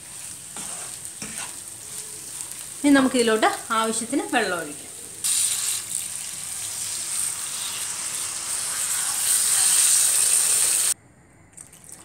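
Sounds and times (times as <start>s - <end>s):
water poured into hot wok sizzling: 5.2s - 11.0s.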